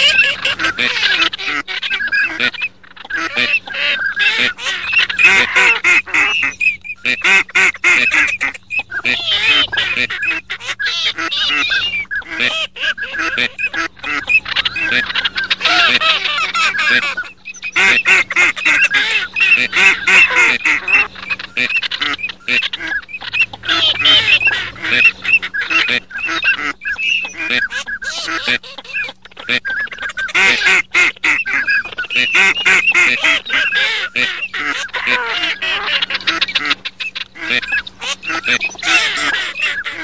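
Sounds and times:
ducks quacking: 0.0s - 40.0s.

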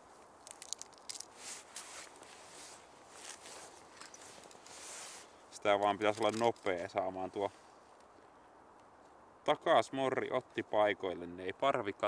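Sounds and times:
hands handling fishing gear: 0.0s - 7.0s
padded suit fabric rustling: 1.3s - 5.4s.

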